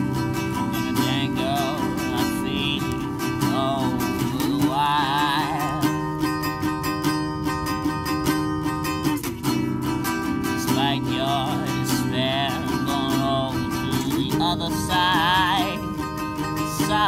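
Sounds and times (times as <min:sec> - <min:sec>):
person singing: 0:00.0 - 0:06.5, 0:10.6 - 0:17.0
resonator guitar strumming: 0:00.0 - 0:17.0.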